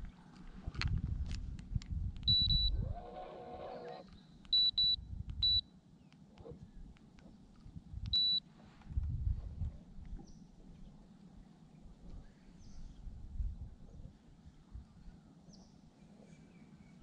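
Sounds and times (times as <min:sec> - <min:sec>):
high electronic beeps: 0:02.3 - 0:02.8.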